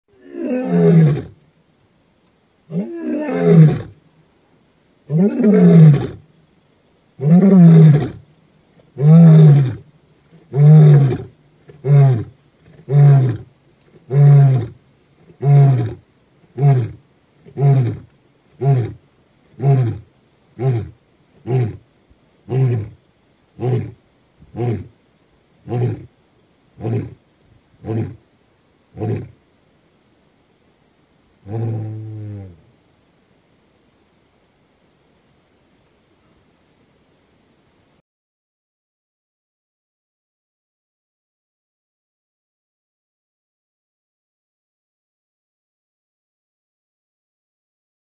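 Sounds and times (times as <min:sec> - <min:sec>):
lion roaring: 0:00.2 - 0:01.4, 0:02.7 - 0:04.0, 0:05.1 - 0:06.2, 0:07.2 - 0:08.2, 0:09.0 - 0:09.8, 0:10.5 - 0:13.5, 0:14.1 - 0:16.0, 0:16.6 - 0:19.0, 0:22.5 - 0:23.0, 0:23.6 - 0:24.9, 0:25.7 - 0:26.1, 0:26.8 - 0:27.2, 0:31.4 - 0:32.6.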